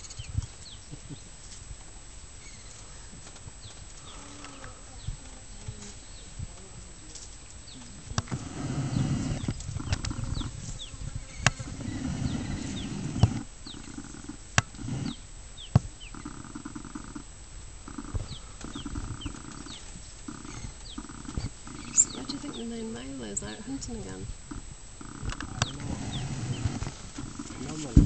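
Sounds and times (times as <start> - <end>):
lions growling: 8.2 - 10.6, 11.3 - 15.2, 16.2 - 22.7, 24.5 - 28.0.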